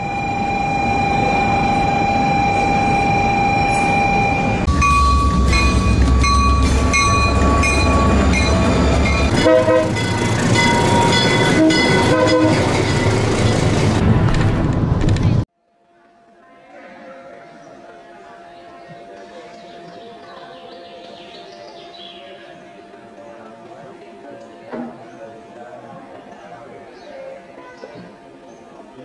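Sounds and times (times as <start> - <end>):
steady high tone: 0.0 - 14.0
bullet train rushing: 0.0 - 15.4
diesel locomotive engine rumbling: 0.0 - 15.5
train horn toots: 3.6 - 12.9.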